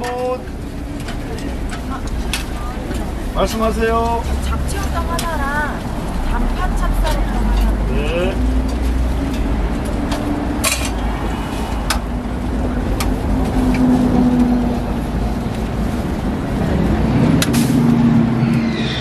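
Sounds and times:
low rumble: 0:09.0 - 0:19.0.

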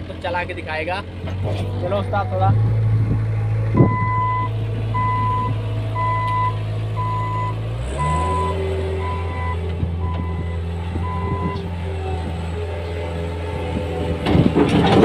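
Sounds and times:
loader diesel engine droning: 0:00.0 - 0:15.0
reversing alarm beeps: 0:03.8 - 0:11.6.

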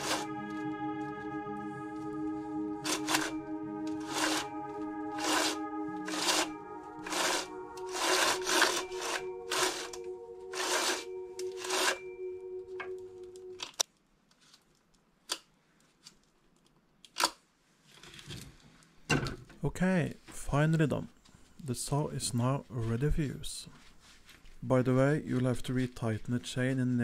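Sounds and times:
music of sustained chords: 0:00.0 - 0:13.8.

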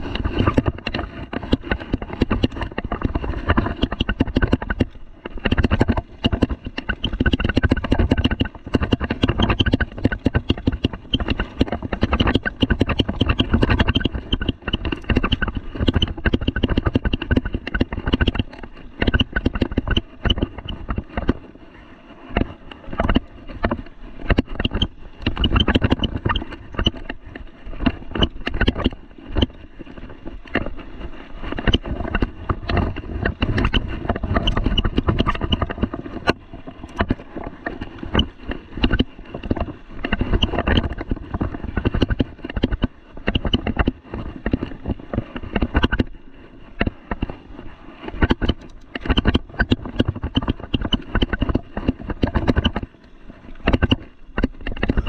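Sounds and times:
bike rattling over bumps: 0:00.0 - 0:21.4, 0:22.3 - 0:47.4
tyres rolling on dirt: 0:00.0 - 0:21.4
wind rumbling on camera: 0:00.0 - 0:55.0.

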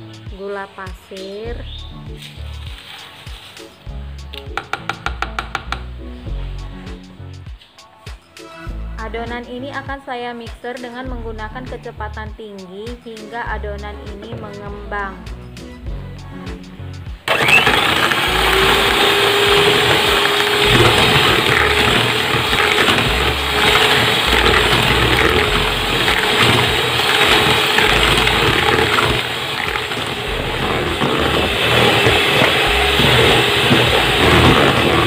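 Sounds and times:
beaters whirring in liquid: 0:17.3 - 0:35.0
hand mixer motor whine: 0:17.3 - 0:35.0.

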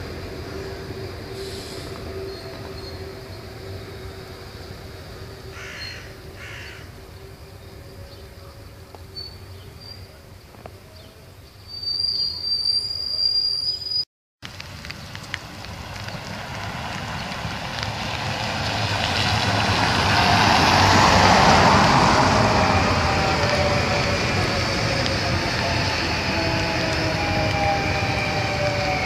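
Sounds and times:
train wheels squealing on rail: 0:00.0 - 0:10.2, 0:11.5 - 0:14.1, 0:20.2 - 0:29.0.

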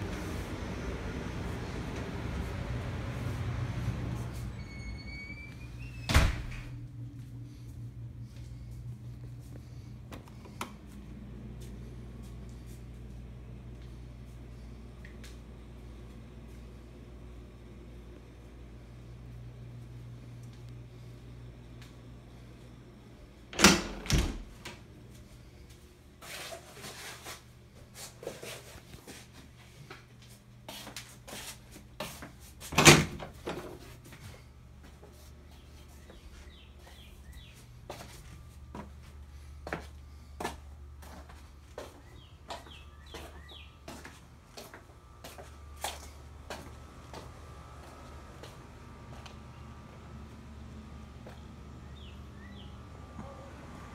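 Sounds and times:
footsteps: 0:33.6 - 0:49.4.

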